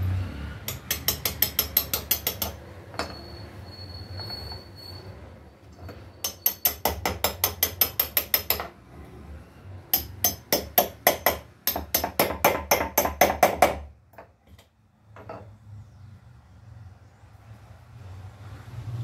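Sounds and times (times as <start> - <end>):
hammer striking nails into wood: 0.6 - 2.6, 6.2 - 8.7, 9.9 - 14.3.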